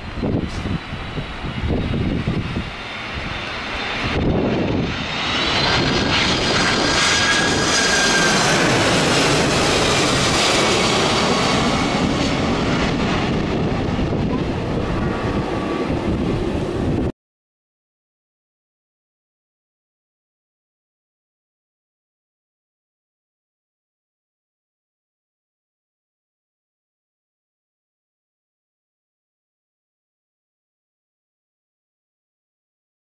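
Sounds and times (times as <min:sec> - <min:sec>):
jet engines roaring overhead: 0:00.0 - 0:17.1.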